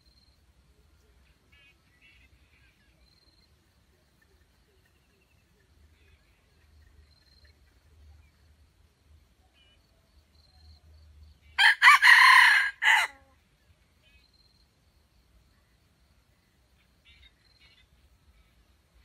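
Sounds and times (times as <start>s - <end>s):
rooster crowing: 11.6s - 13.3s.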